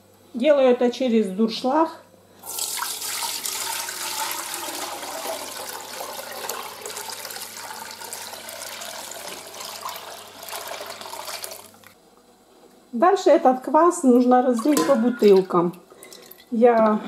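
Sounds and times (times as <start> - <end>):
liquid pouring through a sieve: 2.4 - 11.9.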